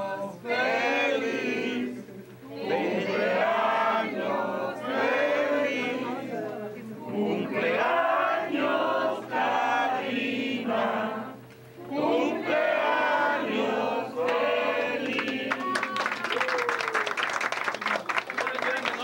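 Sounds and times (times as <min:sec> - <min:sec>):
group of people singing: 0:00.0 - 0:15.8
hand clapping: 0:15.0 - 0:19.0.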